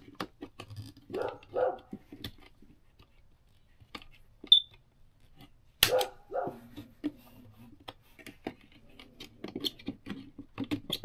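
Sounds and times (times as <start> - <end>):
dog barking: 1.1 - 1.9, 5.9 - 6.7.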